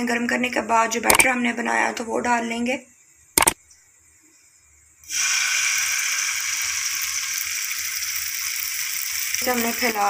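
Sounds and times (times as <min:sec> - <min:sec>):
batter sizzling in a pan: 0:05.0 - 0:10.0.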